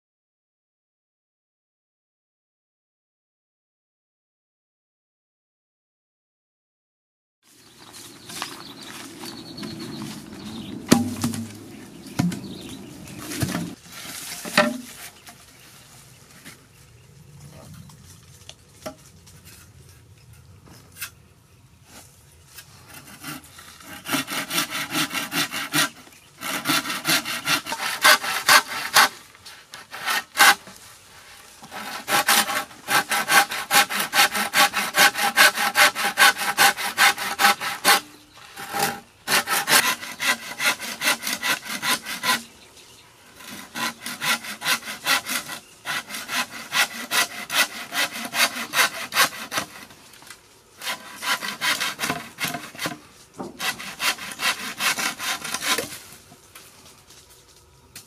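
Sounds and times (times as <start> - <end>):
hand saw cutting bamboo: 10.9 - 11.6, 22.6 - 30.8, 31.6 - 42.5, 43.4 - 50.0, 50.8 - 56.2.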